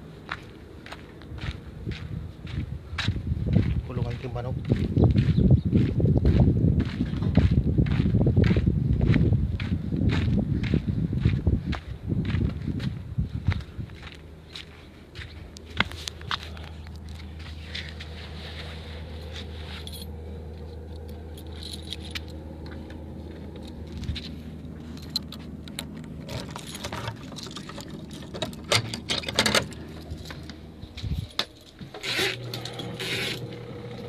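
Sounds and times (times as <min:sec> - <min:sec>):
low machine hum: 0:00.0 - 0:34.0
metallic clicks and rattles: 0:24.9 - 0:33.0.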